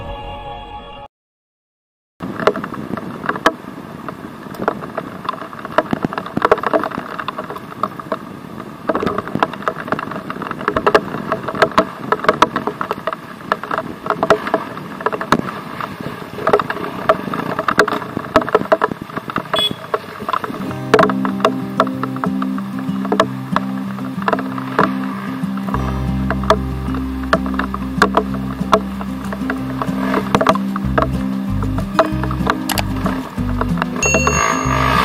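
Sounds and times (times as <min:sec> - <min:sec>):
bike knocks and rattles: 0:02.2 - 0:22.4, 0:27.3 - 0:34.4
dirt bike engine: 0:11.0 - 0:35.0.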